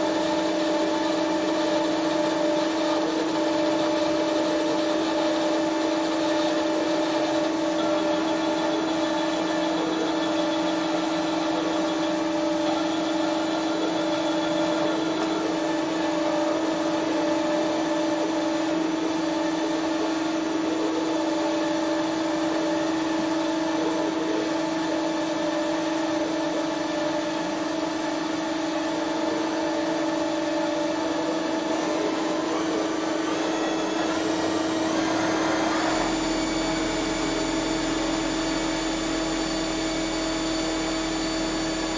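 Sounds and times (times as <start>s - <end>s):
lathe machine hum: 0.0s - 41.9s
deep hum: 34.2s - 41.9s.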